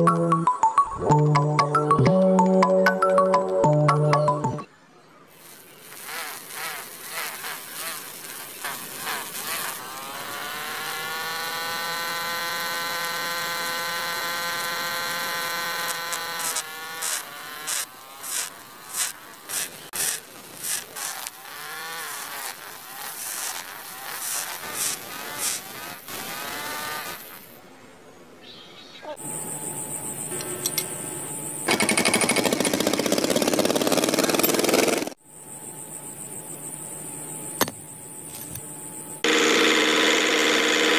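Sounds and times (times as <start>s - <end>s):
small electric motor whining: 5.4s - 27.6s, 39.2s - 40.9s
blade scraping on grinding wheel: 5.9s - 27.5s.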